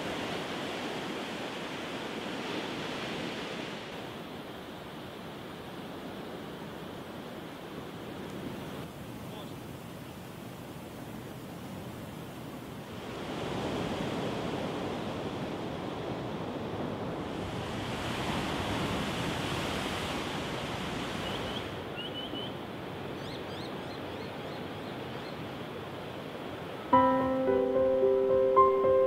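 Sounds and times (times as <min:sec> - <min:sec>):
ocean waves breaking: 0:00.0 - 0:09.2, 0:12.8 - 0:22.0.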